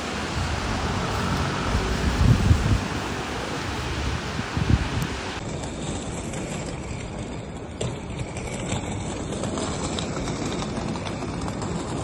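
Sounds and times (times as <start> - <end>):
wind on microphone: 0.1 - 5.4.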